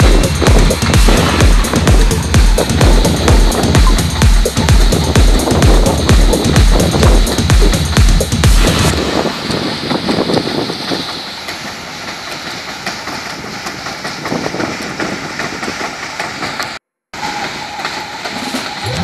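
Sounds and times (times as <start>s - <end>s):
combine harvester running: 16.0s - 19.0s.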